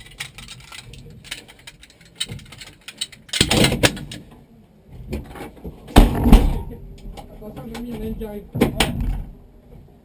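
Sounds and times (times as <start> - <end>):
clattering and handling noises: 0.0 - 9.9
heavy thumps: 5.9 - 9.4.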